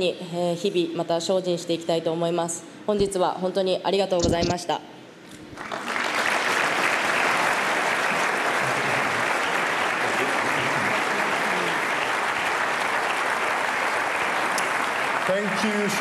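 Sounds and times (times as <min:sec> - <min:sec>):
large audience applauding: 0:05.6 - 0:16.0.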